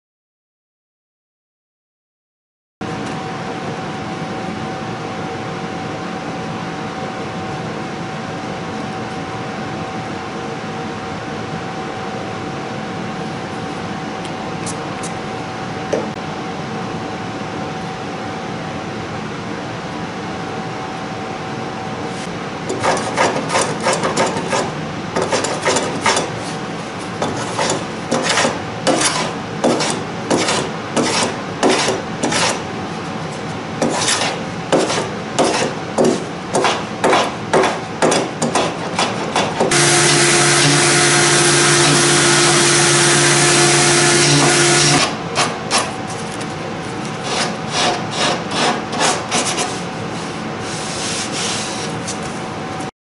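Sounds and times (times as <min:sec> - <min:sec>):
hand tool rasping wood: 0:27.2 - 0:32.6, 0:33.8 - 0:37.3, 0:47.2 - 0:49.8
machine humming: 0:39.5 - 0:49.0.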